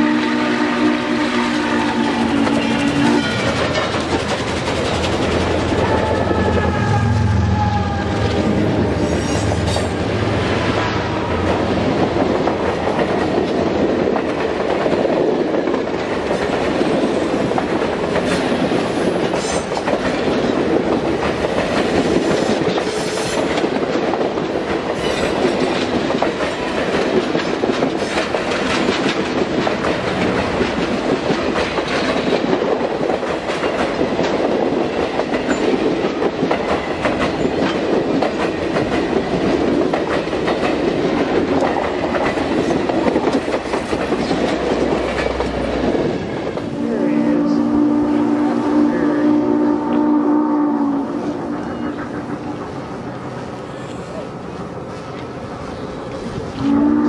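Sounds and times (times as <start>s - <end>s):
train wheels rumbling on rail: 0.0s - 57.0s
wheels clacking over rail joints: 1.7s - 6.4s, 11.4s - 46.7s.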